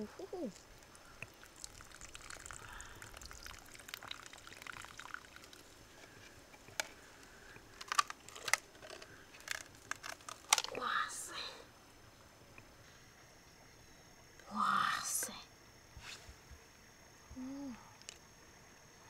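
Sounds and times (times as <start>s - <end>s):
water trickling and pouring: 0.8s - 6.0s.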